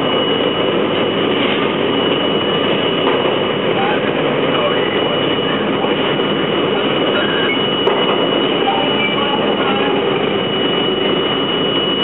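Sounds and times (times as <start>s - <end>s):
train wheels rumbling on rail: 2.6s - 10.5s.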